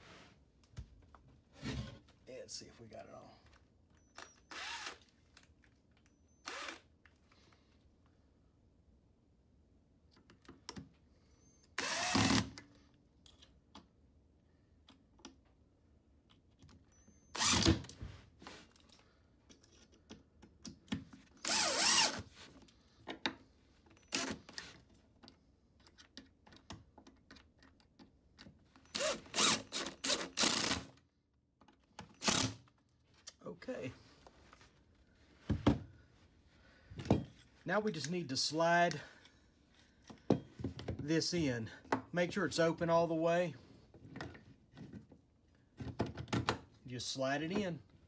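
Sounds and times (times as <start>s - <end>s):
power drill driving screws: 4.2s - 5.1s, 6.4s - 6.9s, 11.8s - 12.6s, 17.3s - 17.9s, 21.4s - 22.2s, 24.0s - 24.7s, 28.9s - 31.0s, 32.1s - 32.6s.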